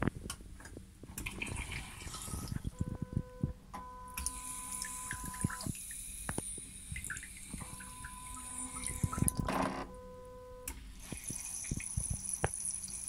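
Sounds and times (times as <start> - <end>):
water dripping and splashing: 1.1 - 2.9, 4.1 - 9.5, 10.7 - 13.0
faint steady tone: 2.1 - 13.0.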